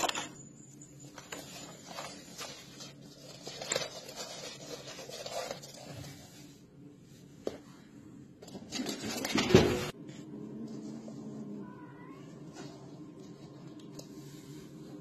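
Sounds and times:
kitten scuffling with toy: 0:01.0 - 0:06.6.

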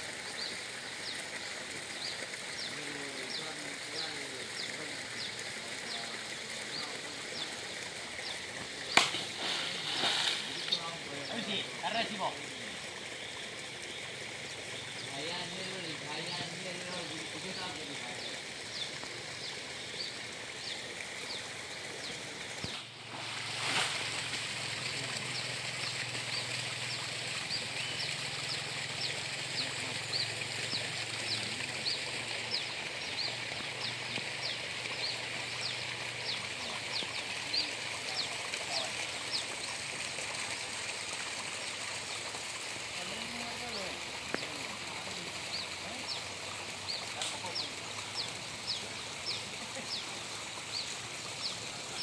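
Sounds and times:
steady high hiss: 0:00.0 - 0:30.1.

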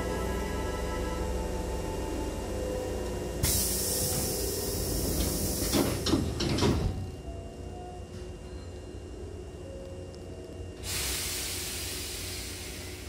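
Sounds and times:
loud hiss of air: 0:03.4 - 0:06.1, 0:10.8 - 0:13.0.

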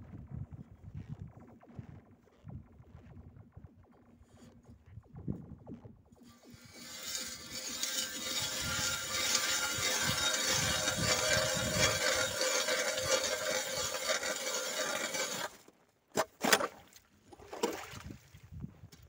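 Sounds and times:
ice auger grinding through ice: 0:06.2 - 0:16.7.

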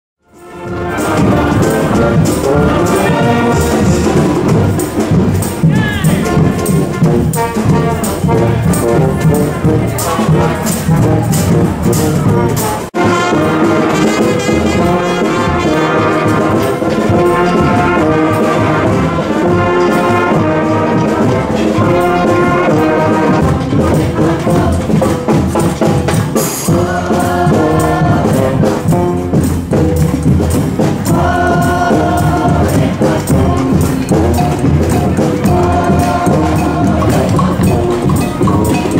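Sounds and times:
brass band playing: 0:00.2 - 0:38.9
drums and percussion: 0:00.2 - 0:38.9.

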